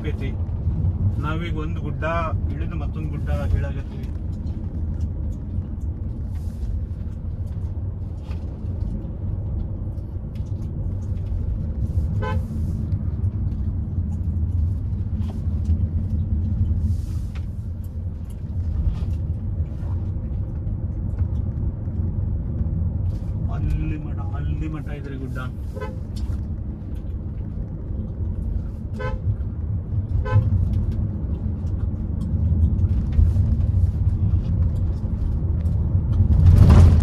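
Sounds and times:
car engine and road rumble: 0.0s - 37.0s
car horn toot: 12.2s - 12.5s, 29.0s - 29.2s, 30.2s - 30.5s.

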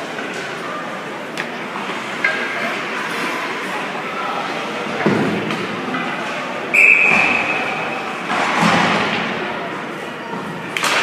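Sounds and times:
arena background noise: 0.0s - 11.0s
referee whistle blast: 6.7s - 7.6s.

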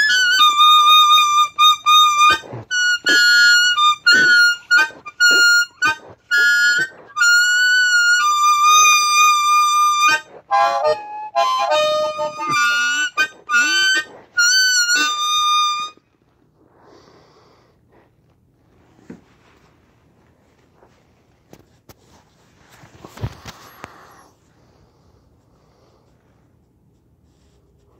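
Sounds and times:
blues harmonica: 0.0s - 16.1s.

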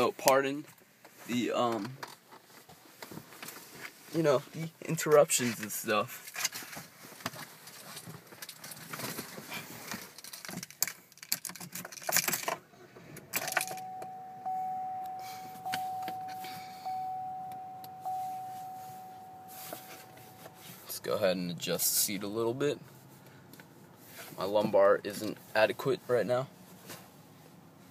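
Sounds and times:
keys jangling and clicking: 13.3s - 13.9s
car warning chime dinging: 13.4s - 21.6s.

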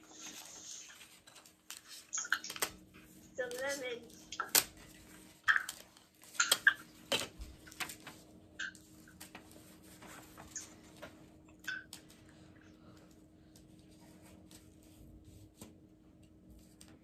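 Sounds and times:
cardboard and tape rustling: 0.0s - 12.3s.

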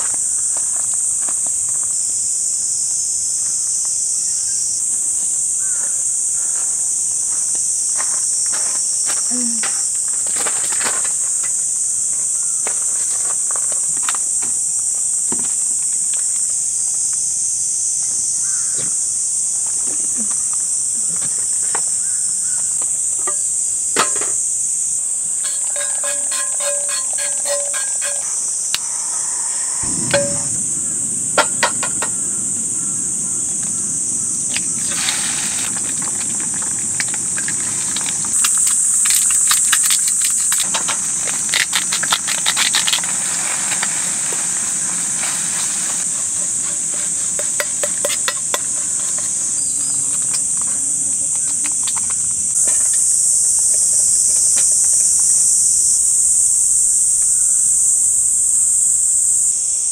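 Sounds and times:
crickets chirping: 0.0s - 59.9s
gas burner rushing: 29.8s - 38.4s
camp cooking gear clicking: 35.6s - 44.0s, 47.4s - 49.4s.

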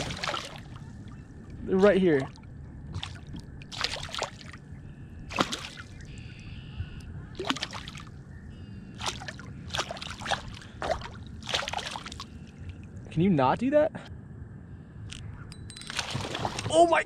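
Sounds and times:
fish splashing at water surface: 0.0s - 0.8s, 3.0s - 4.6s, 5.3s - 6.0s, 7.4s - 8.1s, 9.0s - 12.5s, 15.9s - 16.7s.

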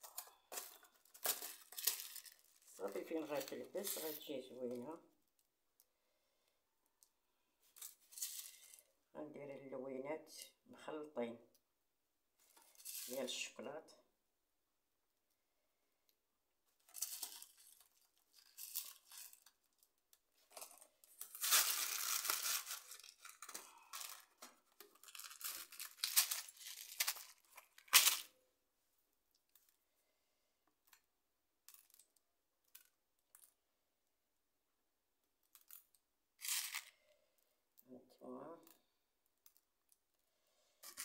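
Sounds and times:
packet crinkling and tearing: 0.0s - 4.5s, 16.9s - 19.8s, 20.5s - 28.3s, 36.4s - 37.0s.

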